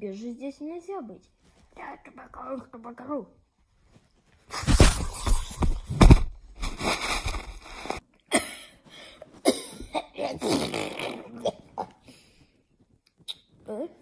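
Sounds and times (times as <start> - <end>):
boy blowing raspberries: 6.6 - 8.0, 10.4 - 11.4
strained mouth noises: 6.7 - 8.0, 10.4 - 12.4, 13.0 - 13.7.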